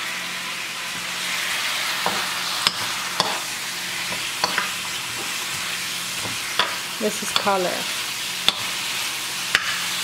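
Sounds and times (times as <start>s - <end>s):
chicken sizzling in pan: 0.0s - 10.0s
metal spoon scraping pan: 2.0s - 7.8s.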